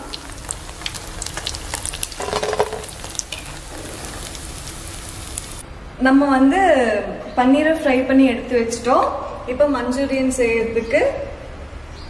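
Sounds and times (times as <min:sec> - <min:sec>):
food sizzling in hot oil: 0:00.0 - 0:05.6.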